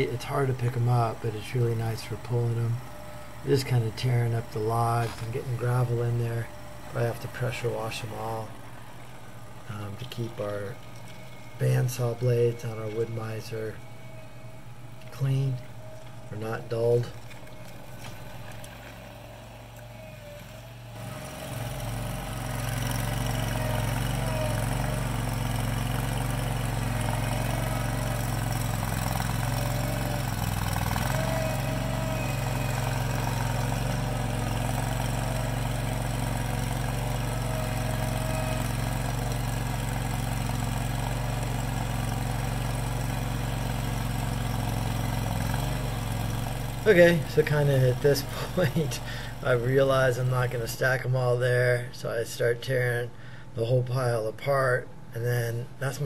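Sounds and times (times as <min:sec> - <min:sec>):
small loader engine running: 0:00.0 - 0:55.8.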